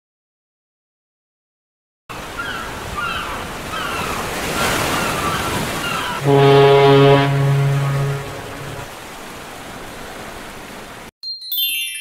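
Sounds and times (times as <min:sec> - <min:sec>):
surf washing on shore: 0:02.1 - 0:11.1
bird cries: 0:02.3 - 0:06.4
foghorn blast: 0:06.2 - 0:08.9.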